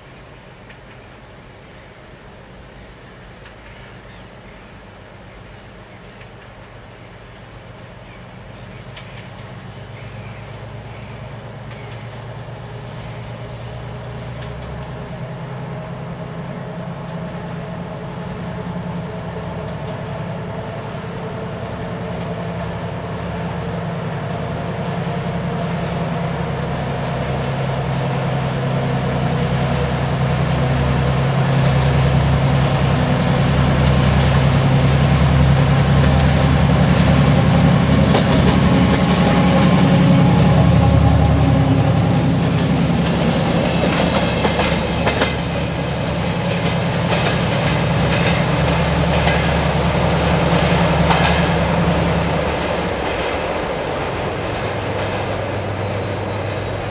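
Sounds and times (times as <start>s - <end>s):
diesel locomotive engine roaring: 6.8s - 56.9s
train clicks: 8.8s - 10.0s, 13.9s - 17.5s, 19.6s - 20.2s, 21.8s - 22.7s, 29.2s - 56.9s.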